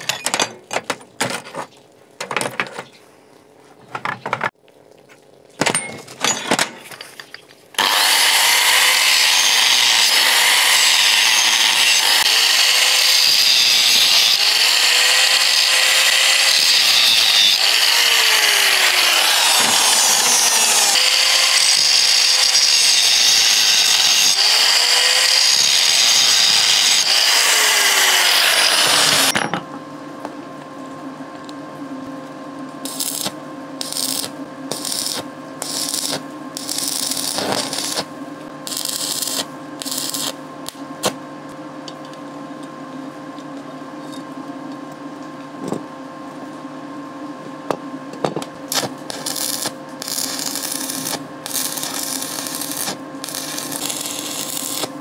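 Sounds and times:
angle grinder on steel: 0:07.8 - 0:29.4, 0:32.9 - 0:38.1, 0:38.7 - 0:40.4, 0:48.7 - 0:55.0.

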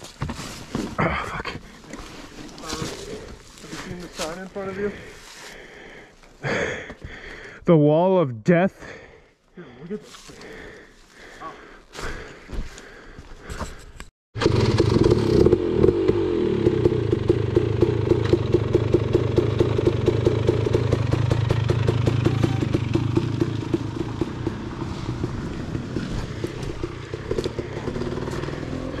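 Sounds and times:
dirt bike engine putting: 0:14.4 - 0:29.0.

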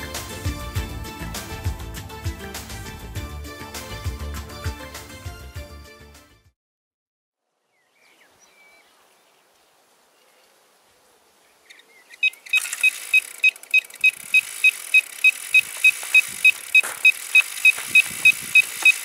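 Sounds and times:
bite alarm beeping rapidly: 0:12.2 - 0:19.0.

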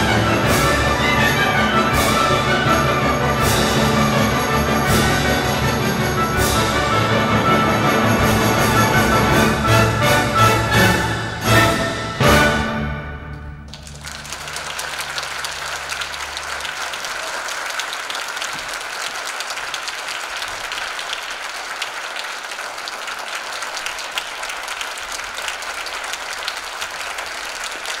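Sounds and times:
audience applauding: 0:13.7 - 0:28.0.

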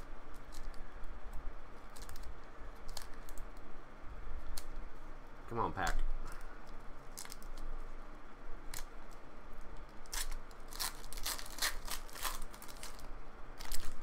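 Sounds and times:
foil wrappers tearing and crinkling: 0:10.0 - 0:14.0.

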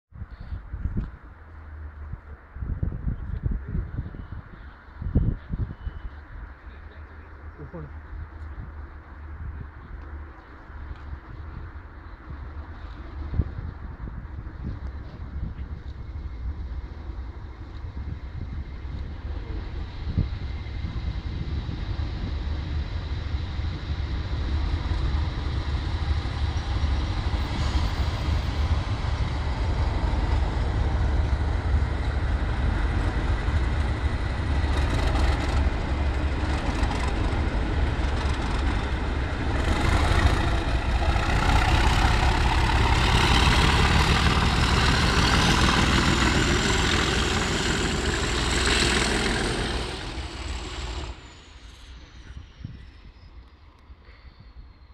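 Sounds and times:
diesel locomotives rumbling: 0:00.1 - 0:54.9
turbocharger whine: 0:17.3 - 0:54.7.

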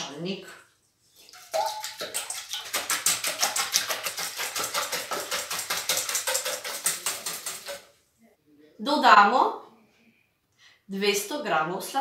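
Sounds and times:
whisk beating eggs in metal bowl: 0:01.6 - 0:07.9.

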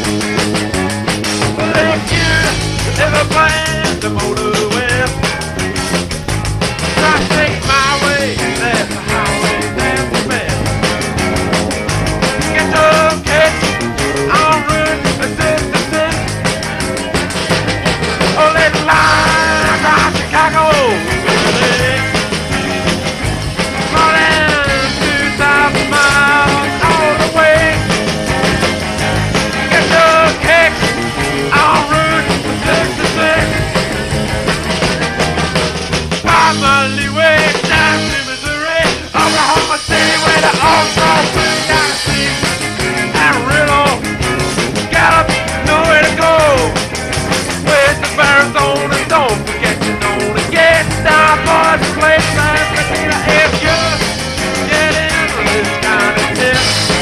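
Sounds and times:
rock band playing: 0:00.0 - 0:57.0.

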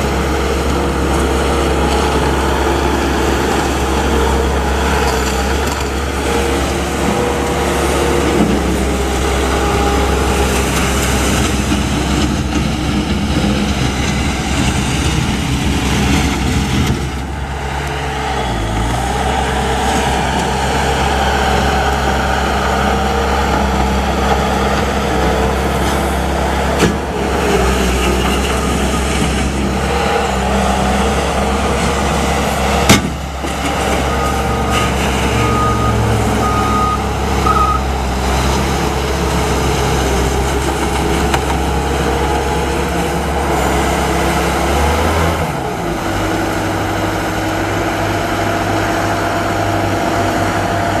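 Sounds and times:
diesel engine running: 0:00.0 - 0:51.0
short beeps: 0:35.4 - 0:37.9.

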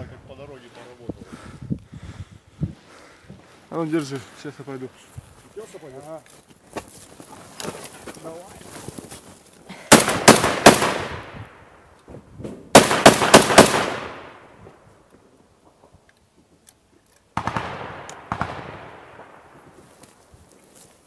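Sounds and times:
automatic gunfire with echo: 0:09.9 - 0:11.4, 0:12.8 - 0:14.4, 0:17.4 - 0:19.5.

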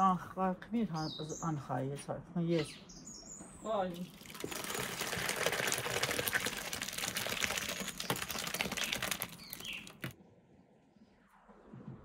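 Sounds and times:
cherries and syrup splattering: 0:04.0 - 0:10.2.

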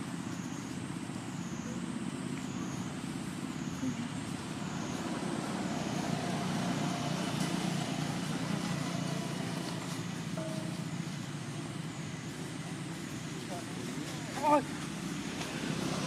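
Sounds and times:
low rumble with hiss: 0:00.0 - 0:16.0.

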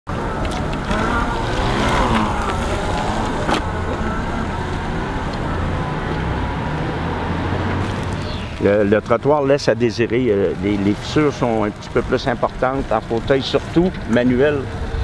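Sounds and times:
street noise: 0:00.1 - 0:15.0
vehicle low hum: 0:00.1 - 0:15.0.

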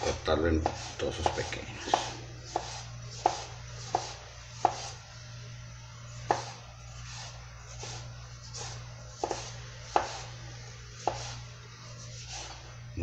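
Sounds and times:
knife tapping cutting board: 0:00.6 - 0:04.9, 0:06.3 - 0:06.5, 0:09.2 - 0:10.2.

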